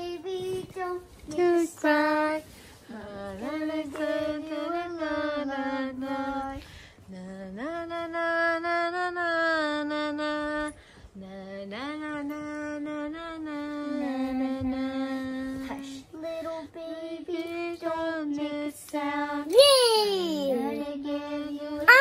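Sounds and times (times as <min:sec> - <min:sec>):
girl singing wordless tune: 0:00.0 - 0:22.0.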